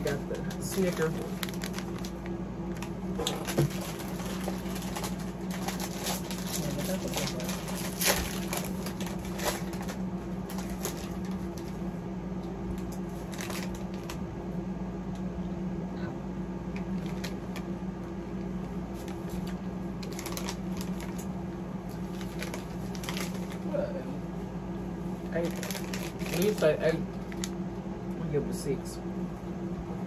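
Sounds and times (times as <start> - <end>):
plastic wrapper crinkling: 0.0 - 11.9, 12.7 - 14.2, 16.8 - 17.7, 18.6 - 23.7, 25.2 - 27.6
steady low hum: 0.0 - 30.0.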